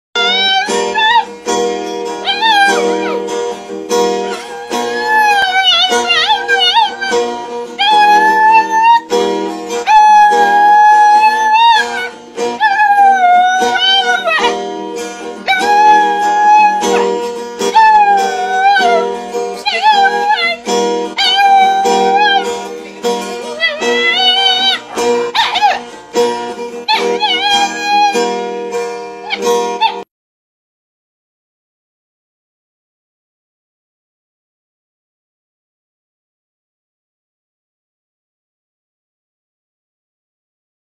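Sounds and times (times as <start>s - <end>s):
dog howling: 0.2s - 1.3s, 2.2s - 3.3s, 4.2s - 7.2s, 7.8s - 9.1s, 9.8s - 14.6s, 15.4s - 17.1s, 17.7s - 20.6s, 21.2s - 22.5s, 23.5s - 25.9s, 26.9s - 28.3s, 29.2s - 30.1s
acoustic guitar strumming: 0.2s - 30.1s.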